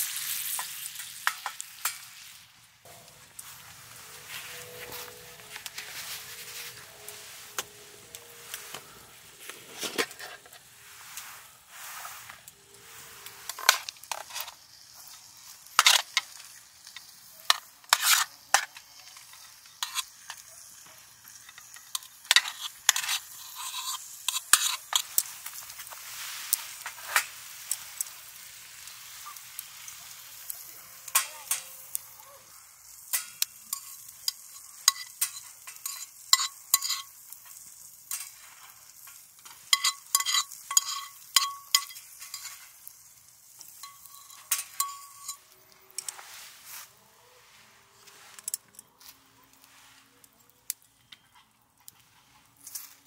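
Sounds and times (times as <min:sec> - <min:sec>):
food sizzling in metal pan: 0:00.0 - 0:50.0
utensil clinking and scraping pan: 0:02.9 - 0:20.5, 0:21.2 - 0:28.2, 0:33.1 - 0:46.8.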